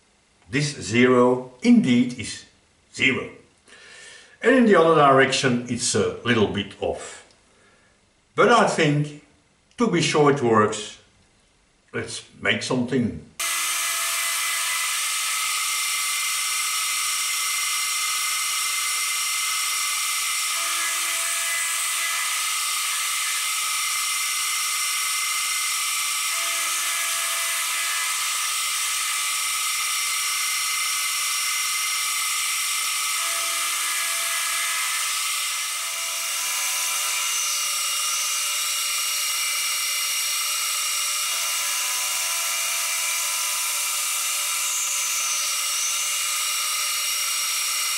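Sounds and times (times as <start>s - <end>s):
milling machine whining: 13.4s - 47.9s.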